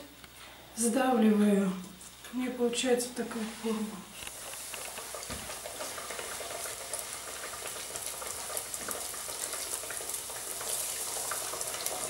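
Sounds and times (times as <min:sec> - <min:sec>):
dough sizzling in hot oil: 0:04.2 - 0:12.0.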